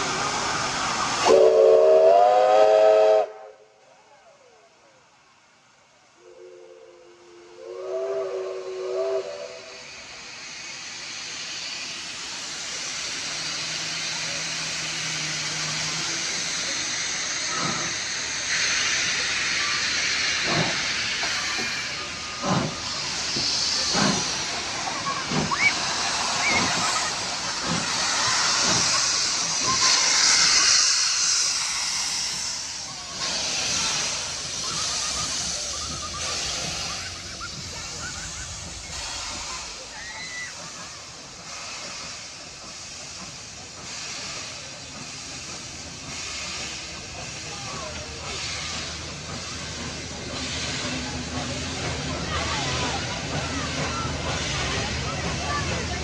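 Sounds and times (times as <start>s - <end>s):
steam hissing: 0.0s - 3.7s, 6.1s - 56.0s
steam locomotive whistle chord: 1.2s - 3.6s, 6.2s - 9.8s.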